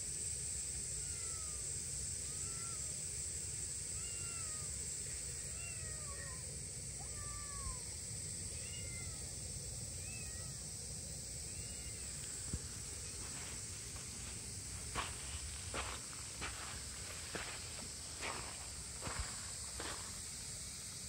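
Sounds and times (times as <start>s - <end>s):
kitten meowing: 1.0s - 1.6s, 2.3s - 2.9s, 4.0s - 4.7s, 5.5s - 6.4s, 7.0s - 7.8s, 8.6s - 9.2s, 10.0s - 10.6s, 11.5s - 12.1s.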